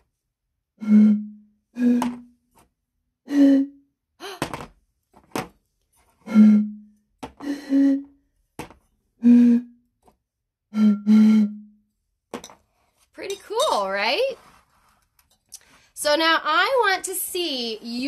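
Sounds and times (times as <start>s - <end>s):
bottles blown giving breathy hoots: 0.8s - 2.2s, 3.3s - 3.8s, 6.2s - 8.2s, 9.2s - 9.8s, 10.7s - 11.8s.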